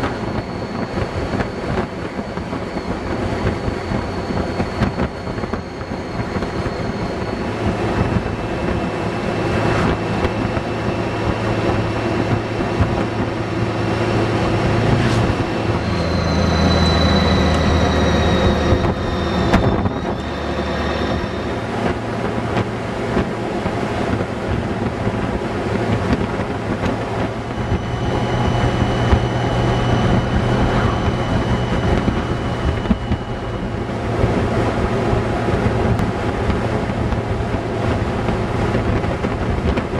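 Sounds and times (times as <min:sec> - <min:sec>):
motorcycle engine hum: 0:00.0 - 0:39.9
wind and road noise: 0:00.0 - 0:39.9.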